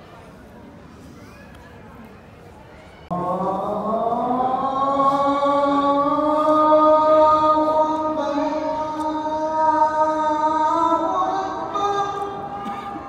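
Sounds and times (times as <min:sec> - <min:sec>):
person chanting one long note: 0:03.1 - 0:13.0.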